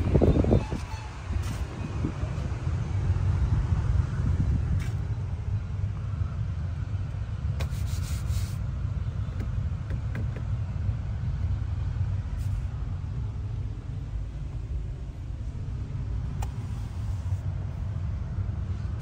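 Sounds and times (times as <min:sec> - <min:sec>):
car rumbling on the move: 0:00.0 - 0:19.0
short rubbing noise: 0:00.6 - 0:01.8, 0:07.6 - 0:08.6.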